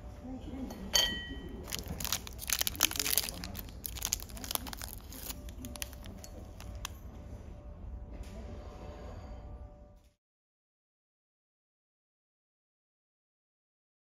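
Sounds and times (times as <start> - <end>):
snack packaging crinkling: 1.6 - 7.0.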